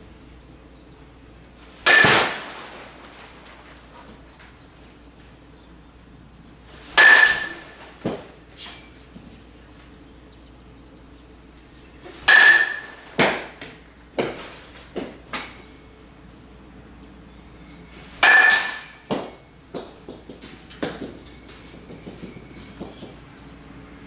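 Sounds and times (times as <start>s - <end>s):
metal bat striking ball: 1.8s - 2.5s, 7.0s - 8.2s, 12.2s - 14.4s, 18.2s - 19.5s.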